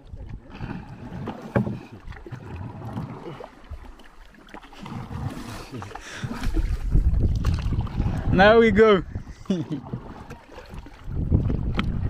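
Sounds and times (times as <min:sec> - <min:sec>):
paddles dipping through water: 0:00.0 - 0:12.0
wind rumbling on microphone: 0:04.8 - 0:12.0.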